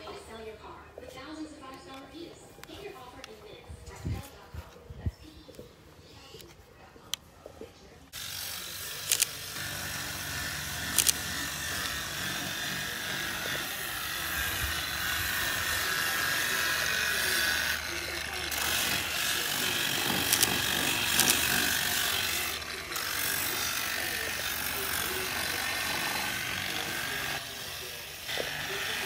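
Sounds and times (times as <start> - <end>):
angle grinder whirring on stone: 8.1 - 29.0.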